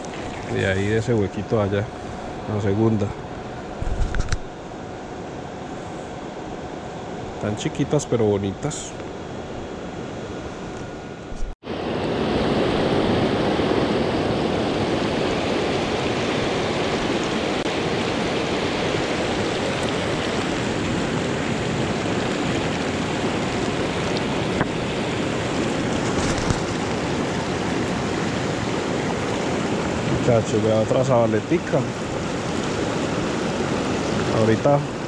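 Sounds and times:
river water rushing over rocks: 0:14.2 - 0:35.0.

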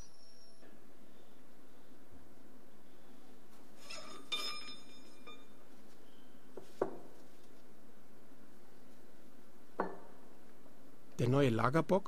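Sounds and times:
steady hum: 0:00.0 - 0:12.0
ringing metallic clink: 0:03.8 - 0:05.6.

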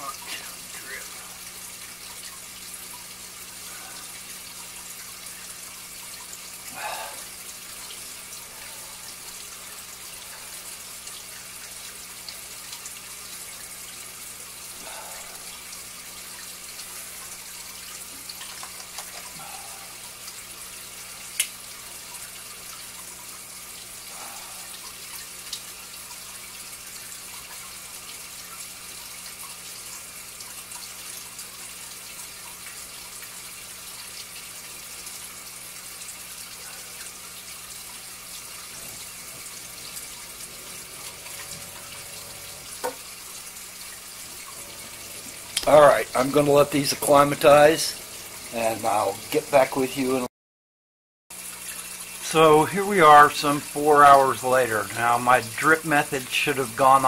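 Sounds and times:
faint steady hiss: 0:00.0 - 0:22.8, 0:44.2 - 0:50.3, 0:51.7 - 0:57.0
water dripping into tub: 0:00.0 - 0:49.7, 0:51.3 - 0:57.0.

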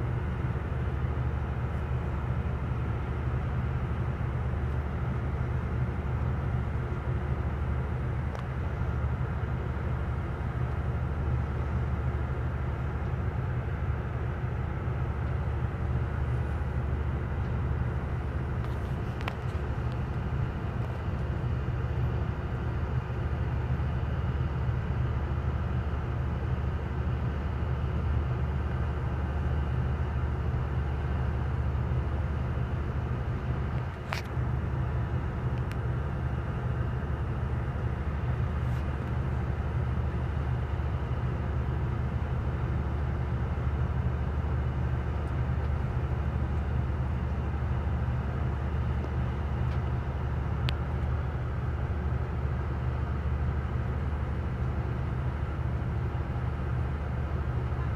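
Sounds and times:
ferry diesel engine drone: 0:00.0 - 0:57.9.

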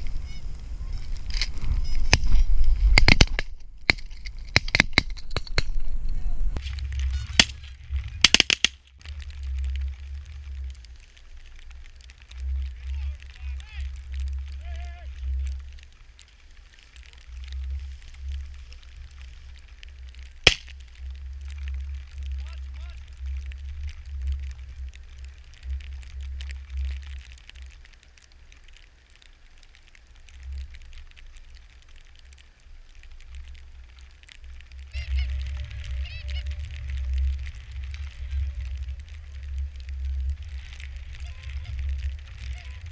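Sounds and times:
wind buffeting microphone: 0:00.0 - 0:08.4, 0:34.4 - 0:42.9
crackling rustles: 0:00.0 - 0:42.9.

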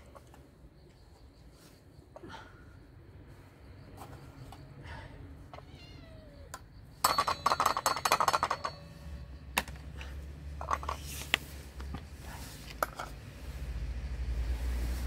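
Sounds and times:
cats meowing: 0:05.4 - 0:06.6.

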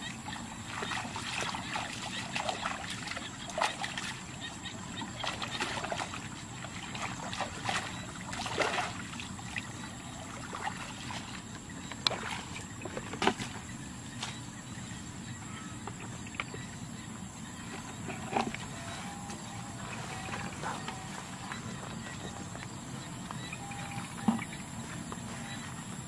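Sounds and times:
water sloshing and splashing: 0:00.0 - 0:26.0.

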